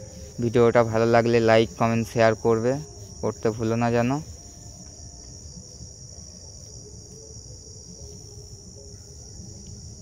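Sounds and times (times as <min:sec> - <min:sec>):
crickets chirring: 0:00.0 - 0:10.0.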